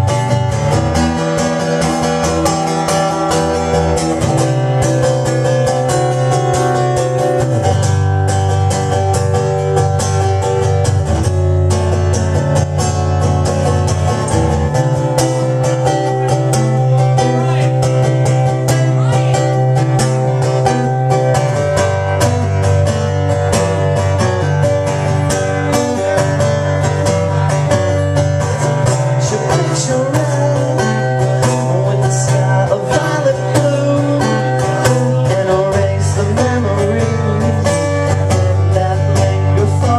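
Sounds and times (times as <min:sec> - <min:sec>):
acoustic guitar strumming: 0:00.0 - 0:39.9
man singing: 0:16.3 - 0:21.2, 0:24.6 - 0:39.9.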